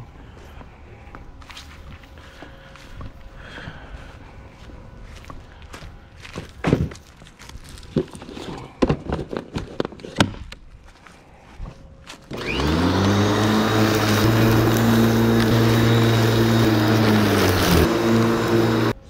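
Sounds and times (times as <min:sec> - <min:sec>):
electric lawn mower motor humming: 0:12.3 - 0:19.0.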